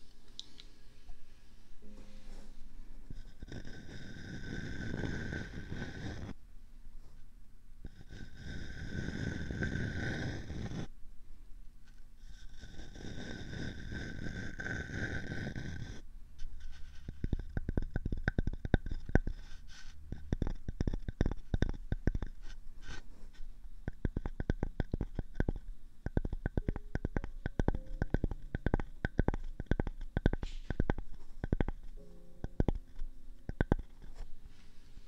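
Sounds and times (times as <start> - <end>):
scratching and rustling on microphone: 18.8 - 23.6.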